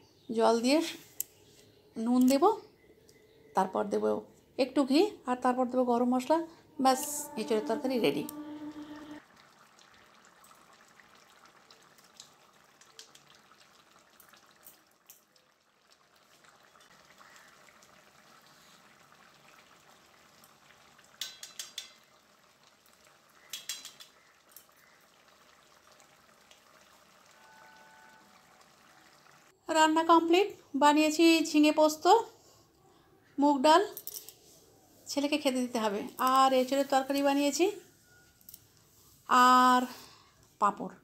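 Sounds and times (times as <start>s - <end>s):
curry bubbling in a pan: 9.0s - 29.6s.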